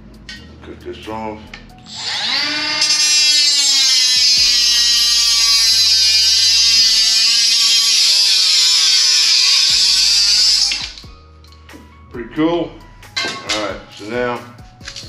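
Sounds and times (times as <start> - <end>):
power tool buzzing whine: 1.9 - 11.0.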